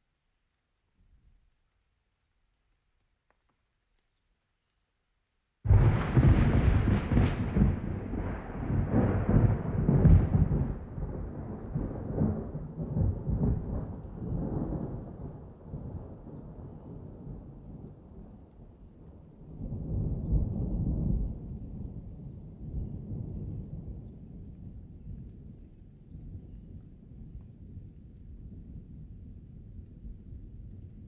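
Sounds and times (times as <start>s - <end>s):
steady rain: 0.0s - 31.0s
thunder rumbling and cracking: 5.7s - 25.7s.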